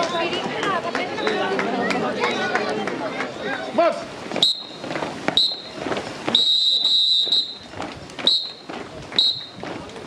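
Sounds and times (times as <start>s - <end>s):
whistle blasts: 4.4s - 4.8s, 5.4s - 8.6s, 9.2s - 9.6s.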